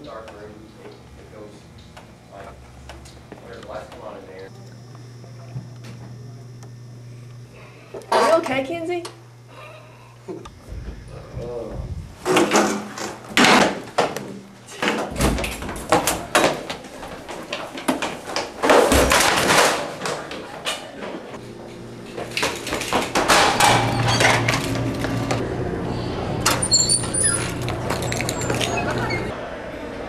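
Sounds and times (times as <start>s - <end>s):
steady low hum: 0.0s - 30.0s
hurried footsteps: 10.5s - 12.6s.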